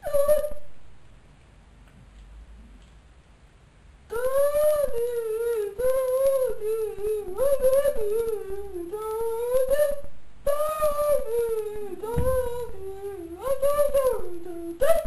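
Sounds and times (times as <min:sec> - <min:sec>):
boy humming: 0:00.0 - 0:00.7, 0:04.1 - 0:15.0.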